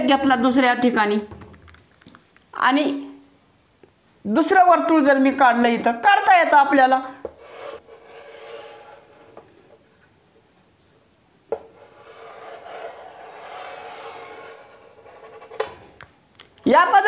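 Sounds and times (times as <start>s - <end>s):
chalk rasping on chalkboard: 7.3s - 9.4s, 11.7s - 15.7s.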